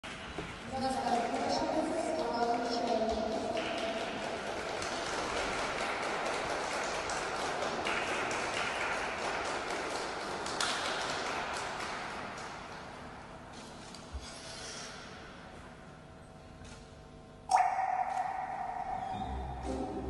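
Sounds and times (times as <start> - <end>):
audience applauding: 1.0 - 12.5.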